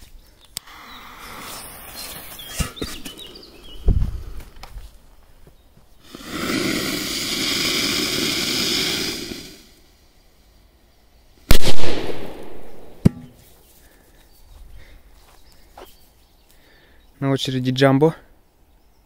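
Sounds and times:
firecracker fuse hissing: 0:00.6 - 0:03.2, 0:06.0 - 0:10.5, 0:11.3 - 0:13.0
firecracker bang: 0:11.5 - 0:13.3.

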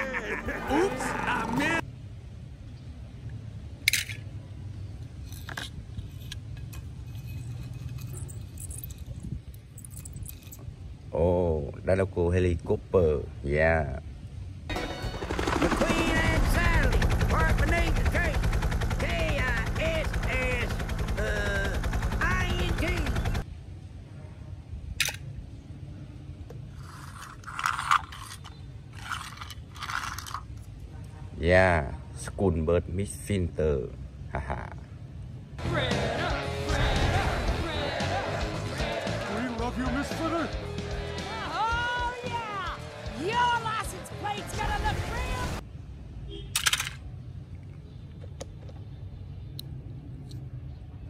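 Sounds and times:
toy wheels scraping on concrete: 0:26.7 - 0:30.6.

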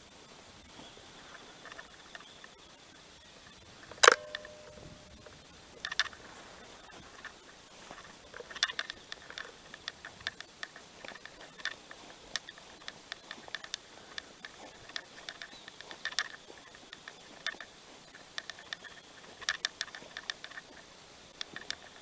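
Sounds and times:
camp gear ticks and taps: 0:00.8 - 0:02.6, 0:03.5 - 0:22.0
sharp metallic clink: 0:03.9 - 0:06.2.

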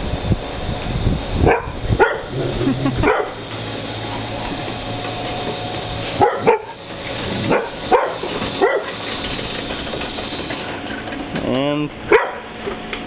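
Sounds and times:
electric cable winch humming: 0:00.0 - 0:13.0
dog barking: 0:01.4 - 0:03.4, 0:06.2 - 0:06.8, 0:07.5 - 0:09.0, 0:12.1 - 0:12.5.

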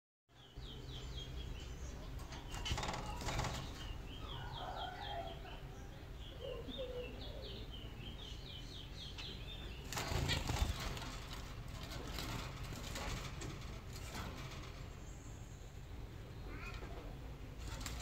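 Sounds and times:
finches chirping: 0:00.4 - 0:11.4
wing flapping and scuffling: 0:02.1 - 0:04.8, 0:09.6 - 0:18.0.

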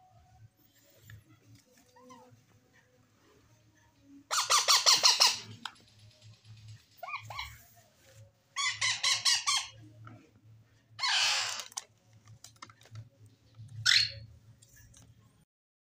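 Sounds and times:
parrot chicks begging calls: 0:04.3 - 0:05.6, 0:08.6 - 0:09.8, 0:11.0 - 0:11.8, 0:13.8 - 0:14.2.

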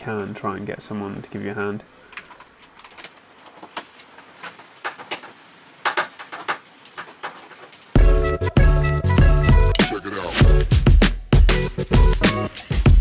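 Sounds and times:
electrical cable clicking and rustling: 0:02.1 - 0:08.0.

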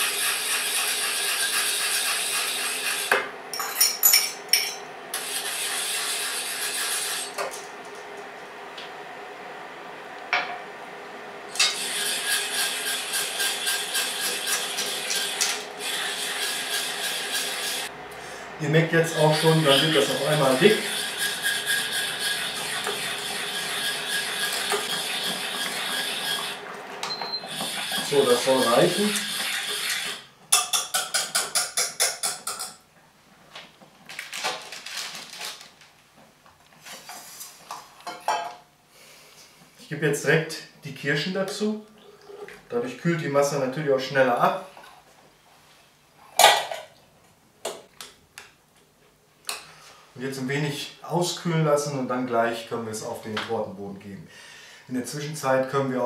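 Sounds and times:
whisk scraping metal saucepan: 0:00.0 - 0:03.1, 0:05.2 - 0:07.4, 0:11.6 - 0:17.9, 0:18.9 - 0:26.6, 0:27.5 - 0:32.8.

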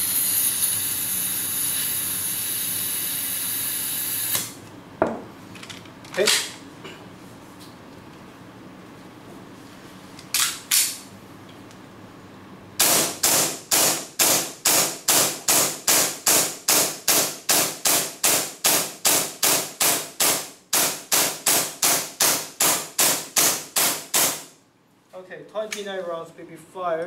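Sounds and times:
airsoft pistol shots: 0:12.8 - 0:24.5.

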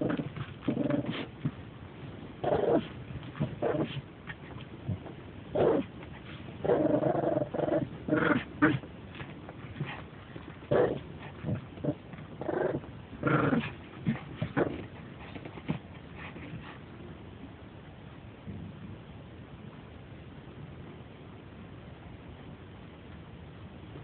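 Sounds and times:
dog play-growling: 0:00.0 - 0:17.1.

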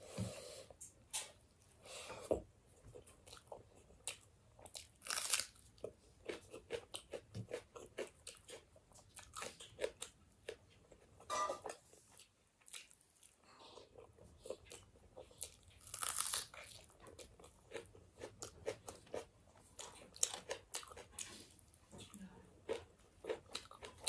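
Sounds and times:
chewing and crunching food: 0:02.7 - 0:24.0.

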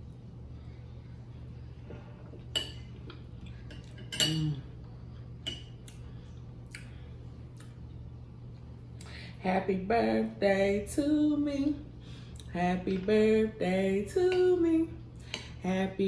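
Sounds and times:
steady low hum: 0:00.0 - 0:16.0
metal fork clinking on a plate: 0:03.7 - 0:04.6.

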